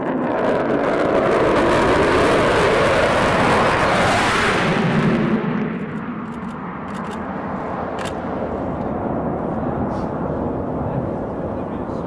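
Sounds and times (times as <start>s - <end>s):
distant jet engine roar: 0.0s - 12.0s.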